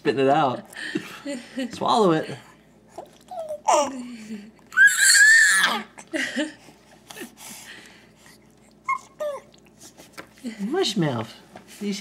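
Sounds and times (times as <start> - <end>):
baby squealing: 4.7 - 5.9.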